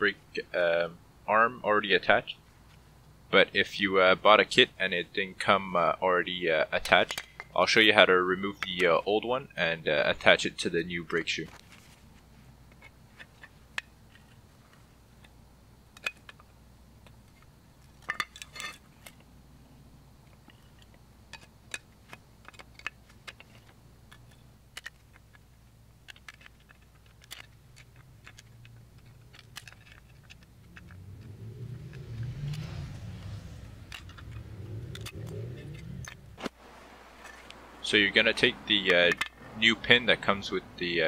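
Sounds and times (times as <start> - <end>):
faint low hum: 0.0 - 41.0.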